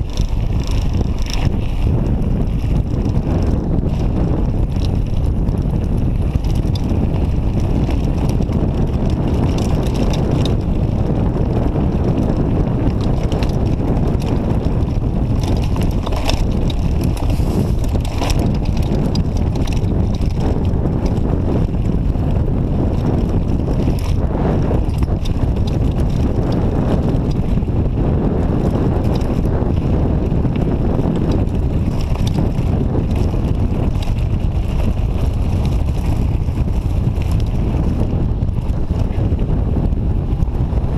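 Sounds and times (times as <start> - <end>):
bike rattling and clicking: 0.0 - 40.9
wind rumbling on microphone: 0.0 - 40.9
tyres crunching over stones: 15.1 - 20.4.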